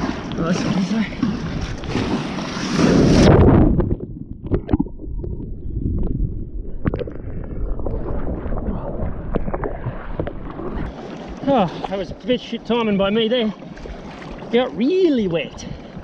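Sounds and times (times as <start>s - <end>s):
wave rushing over kayak: 0.0s - 3.7s
muffled water sloshing: 0.0s - 16.0s.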